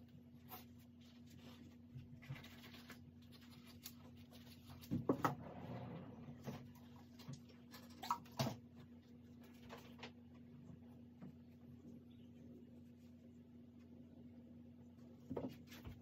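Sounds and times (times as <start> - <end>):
steady low hum: 8.6 - 16.0.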